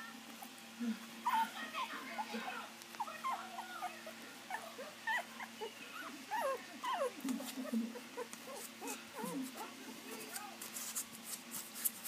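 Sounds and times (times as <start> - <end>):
puppies whimpering: 1.2 - 10.4
puppy low growl: 3.0 - 9.8.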